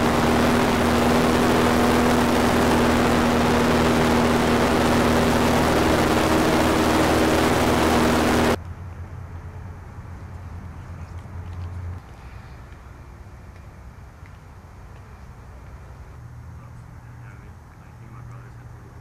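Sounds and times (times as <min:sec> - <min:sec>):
airboat engine and propeller drone: 0:00.0 - 0:08.6, 0:16.4 - 0:19.0.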